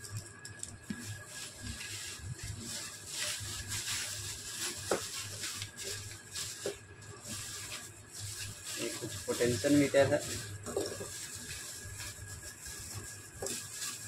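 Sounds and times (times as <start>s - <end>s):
plastic bag crinkling: 0.0s - 14.0s
hands digging through components: 1.0s - 14.0s.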